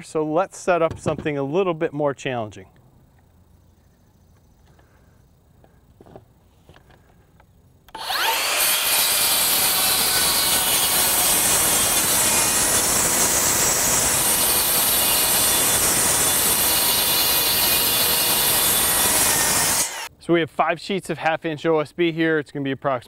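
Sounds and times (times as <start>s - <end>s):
circular saw cutting wood board: 7.9s - 20.1s.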